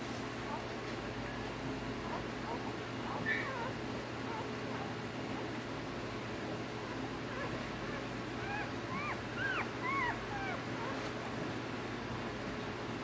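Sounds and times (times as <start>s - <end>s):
steady low hum: 0.0s - 13.0s
puppies squeaking and whimpering: 2.0s - 5.0s, 7.3s - 11.1s.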